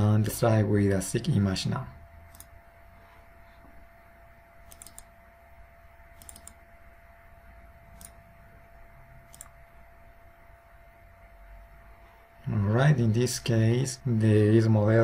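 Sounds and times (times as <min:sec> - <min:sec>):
low hum: 0:00.0 - 0:15.0
computer mouse clicks: 0:02.3 - 0:02.5, 0:04.6 - 0:05.1, 0:06.2 - 0:06.6, 0:07.9 - 0:08.2, 0:09.3 - 0:09.6.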